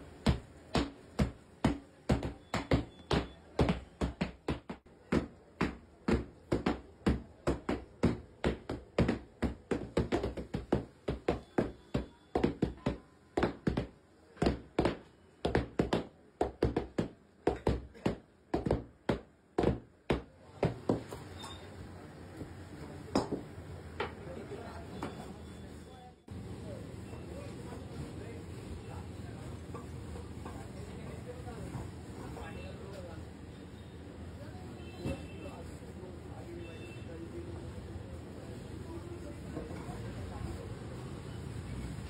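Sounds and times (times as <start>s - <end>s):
mallets pounding dough: 0.0s - 21.1s.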